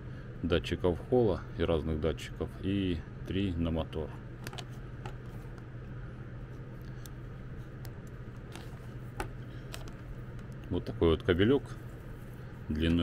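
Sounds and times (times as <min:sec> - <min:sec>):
steady low hum: 0:00.0 - 0:13.0
plastic connectors clicking: 0:04.4 - 0:05.6, 0:07.8 - 0:10.7.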